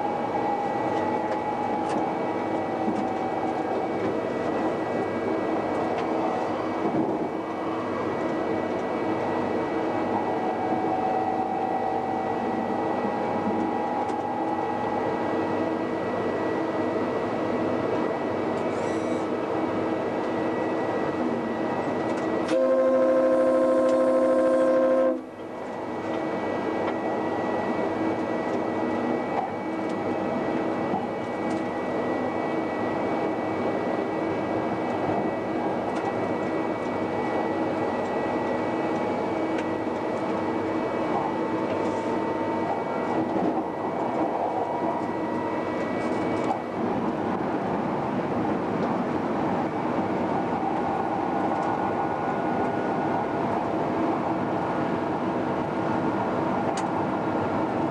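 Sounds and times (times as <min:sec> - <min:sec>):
train wheels rumbling on rails: 0:00.0 - 0:57.9
train horn: 0:22.4 - 0:25.4.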